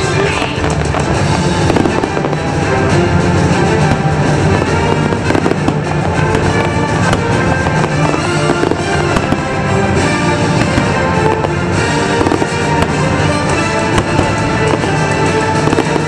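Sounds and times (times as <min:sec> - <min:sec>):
fireworks cracking and popping: 0:00.0 - 0:16.0
loud show music: 0:00.0 - 0:16.0.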